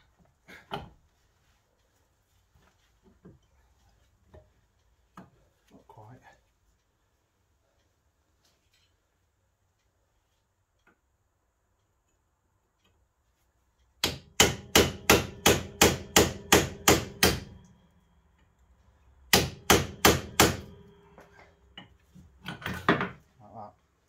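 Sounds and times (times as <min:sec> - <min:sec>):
hammer striking metal hub: 0:14.0 - 0:17.7, 0:19.3 - 0:22.9.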